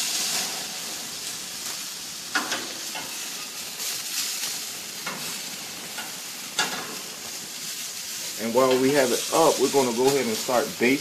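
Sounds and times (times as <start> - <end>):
meat sizzling on a grill: 0.0 - 11.0
tongs clicking on grill grates: 1.6 - 7.0.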